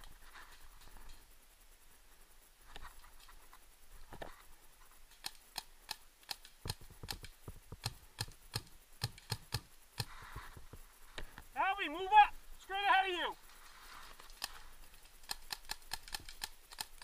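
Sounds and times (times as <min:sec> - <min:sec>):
paintball markers popping: 0:15.2 - 0:17.0.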